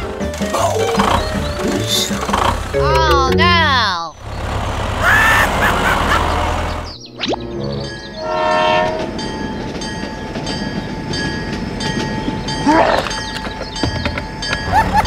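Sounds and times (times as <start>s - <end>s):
clatter of train wheels: 0.0s - 3.1s, 8.8s - 15.0s
train rumbling along track: 0.0s - 7.0s, 7.6s - 15.0s
train horn: 8.2s - 9.2s.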